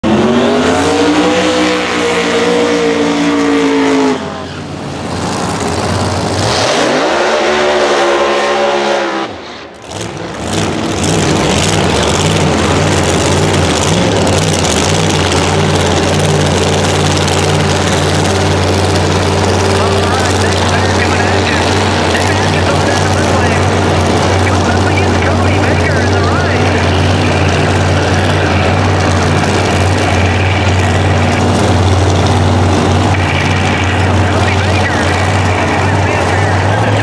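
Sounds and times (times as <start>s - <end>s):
race car engines revving: 0.0s - 37.0s
loud engine idle: 9.8s - 37.0s.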